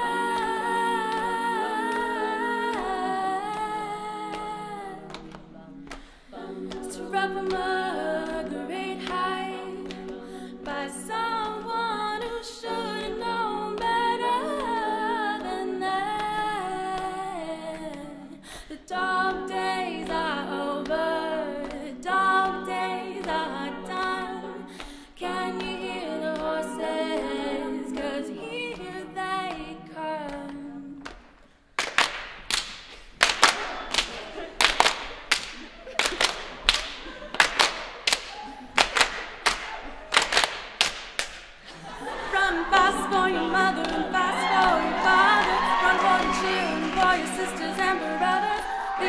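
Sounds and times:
women's choir singing chords: 0.0s - 31.1s, 41.6s - 49.0s
rhythmic clapping: 0.0s - 49.0s.

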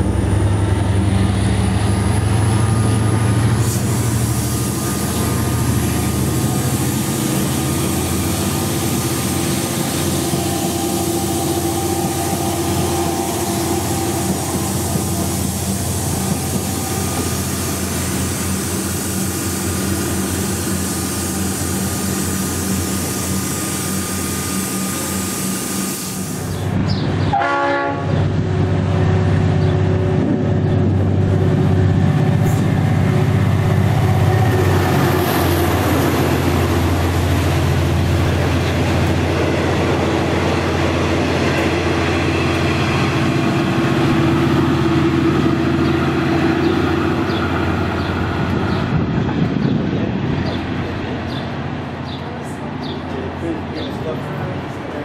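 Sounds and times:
diesel locomotive engine drone: 0.0s - 55.0s
train horn blast: 27.2s - 28.3s.

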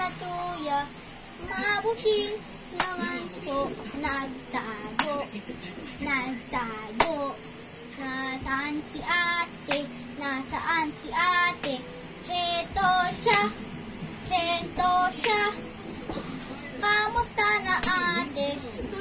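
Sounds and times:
boy singing: 0.0s - 5.3s, 6.0s - 7.4s, 8.0s - 13.6s, 14.3s - 15.6s, 16.8s - 19.0s
hand clapping: 2.8s - 3.0s, 5.0s - 5.2s, 7.0s - 7.2s, 11.6s - 11.8s, 13.2s - 13.6s, 15.2s - 15.5s, 17.8s - 18.1s.

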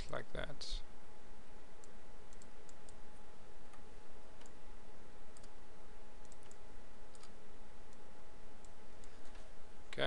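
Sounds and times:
faint constant tone: 0.0s - 10.0s
computer mouse clicking: 1.8s - 3.0s, 5.3s - 5.6s, 6.2s - 8.0s, 8.6s - 9.4s.

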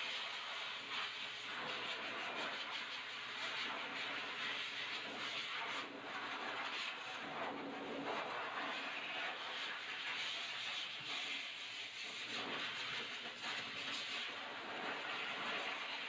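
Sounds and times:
pet dryer blowing air: 3.4s - 16.0s.

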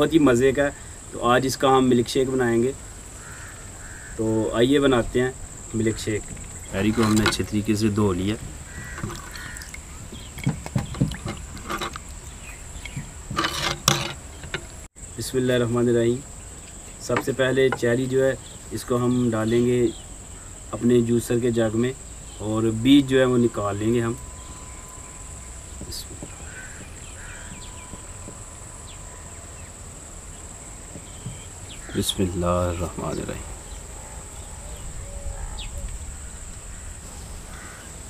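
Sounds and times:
crickets chirring: 0.0s - 38.0s
cherries knocking in clay bowl: 6.2s - 14.8s.

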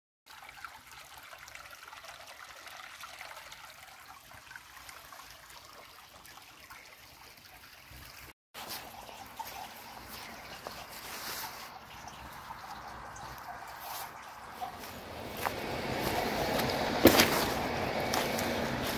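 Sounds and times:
water trickling in brook: 0.3s - 18.9s.

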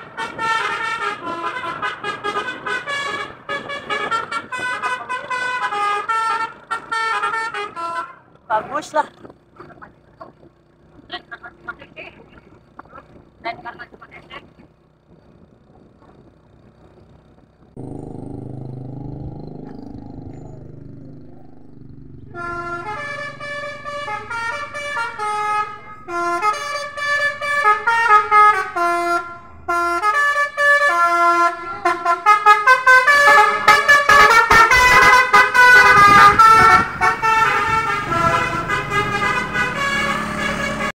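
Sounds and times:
bus horn playing a tune: 0.0s - 8.3s, 17.8s - 41.0s.

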